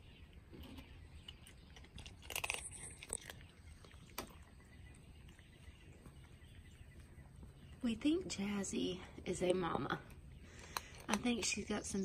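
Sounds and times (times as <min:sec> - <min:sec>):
cat crunching dry kibble: 0:00.4 - 0:04.5.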